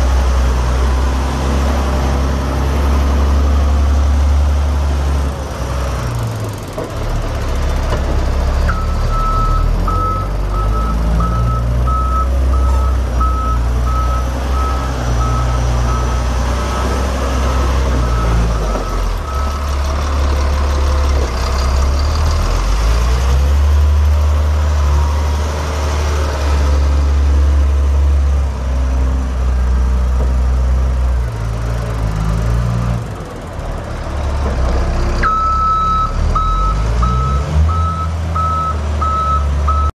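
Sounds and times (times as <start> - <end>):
diesel truck engine under load: 0.0 - 39.9
reversing alarm beeping: 35.2 - 39.9.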